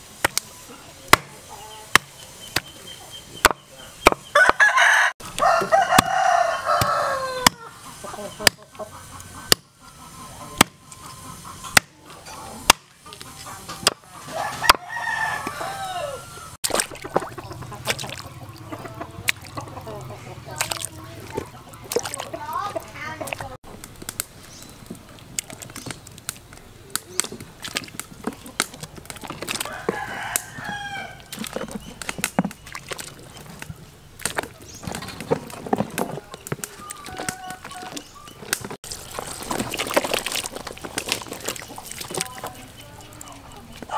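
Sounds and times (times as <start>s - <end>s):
rooster crowing: 4.4s - 7.8s, 14.2s - 16.6s, 29.6s - 31.2s
water sloshing in a basin: 16.6s - 23.6s, 24.7s - 43.9s.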